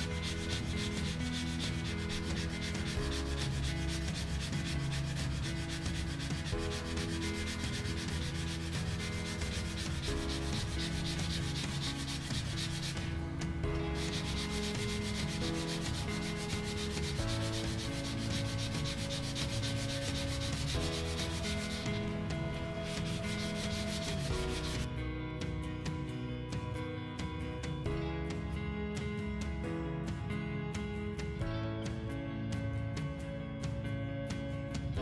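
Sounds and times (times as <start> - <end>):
sandpaper rubbing on wood: 0.0 - 24.9.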